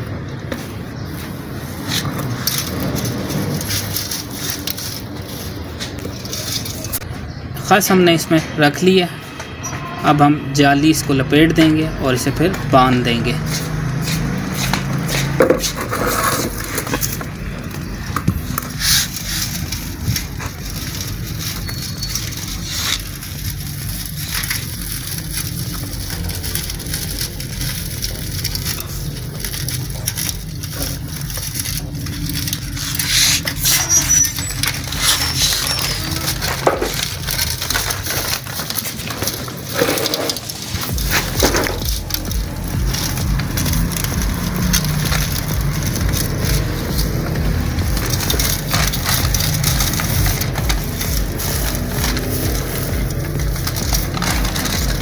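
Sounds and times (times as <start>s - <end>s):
dry fibres rustling and crackling: 0.0s - 55.0s
hands patting fibres: 13.4s - 55.0s.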